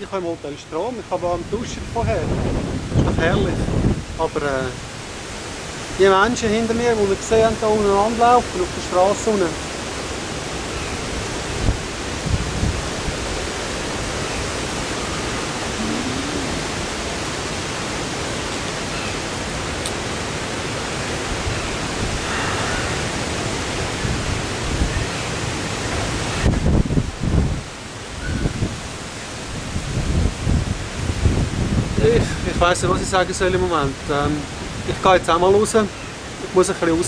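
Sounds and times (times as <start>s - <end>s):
rain: 0.0s - 37.0s
storm wind: 0.0s - 37.0s
wind buffeting microphone: 1.2s - 7.0s, 11.0s - 17.2s, 21.2s - 35.2s.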